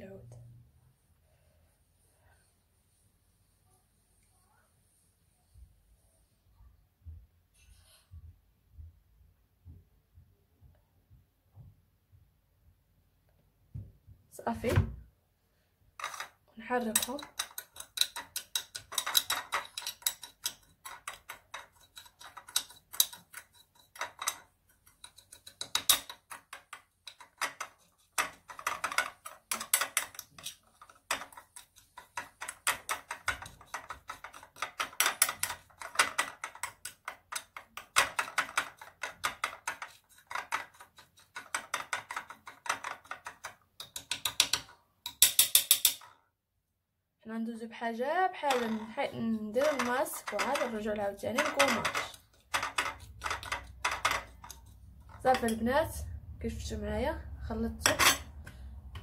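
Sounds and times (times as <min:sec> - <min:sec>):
teaspoon scraping in glass dish: 0:16.0 - 0:42.4, 0:48.4 - 0:55.9.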